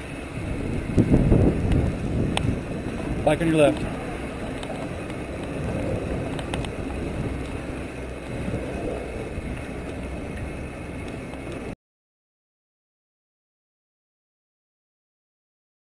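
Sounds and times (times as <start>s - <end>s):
bike tyres rumbling on dirt: 0.0s - 11.7s
wind on microphone: 0.0s - 11.8s
bike clicks: 0.6s - 11.7s.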